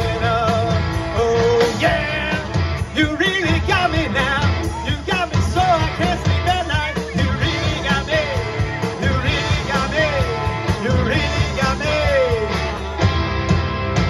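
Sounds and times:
person singing lead vocal: 0:00.0 - 0:13.0
rock band playing: 0:00.0 - 0:14.0.

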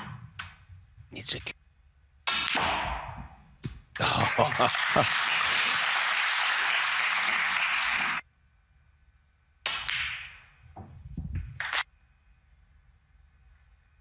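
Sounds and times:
snooker balls clicking: 0:00.0 - 0:00.7, 0:09.7 - 0:11.8
audience applauding: 0:04.0 - 0:08.2, 0:11.6 - 0:11.8.

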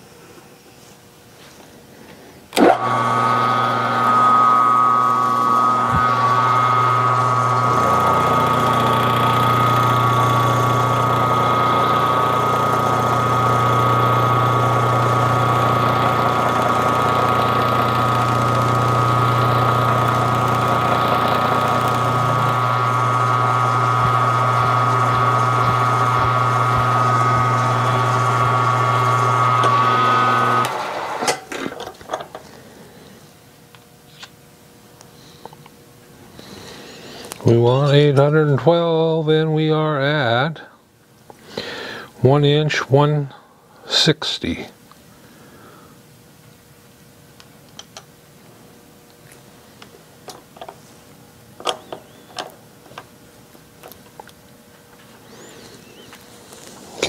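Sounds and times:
deeper hum: 0:02.6 - 0:30.7
drill motor whining: 0:02.6 - 0:31.8, 0:51.7 - 0:52.5, 0:55.2 - 0:57.0.

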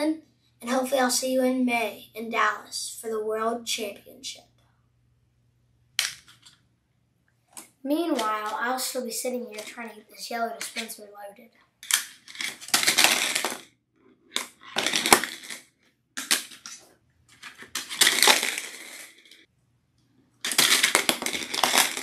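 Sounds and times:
plastic discs clattering: 0:14.3 - 0:15.6.

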